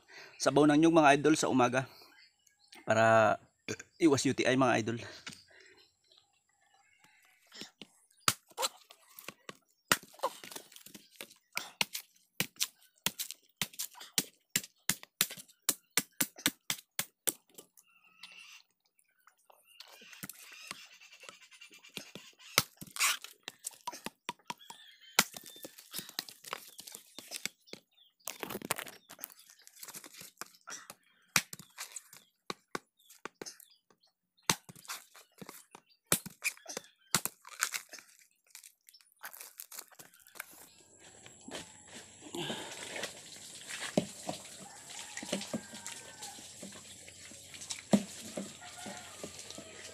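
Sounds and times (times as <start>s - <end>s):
coconut husk tearing: 8.2s - 17.6s, 22.0s - 27.6s, 28.2s - 32.3s, 34.5s - 41.6s, 47.6s - 49.9s.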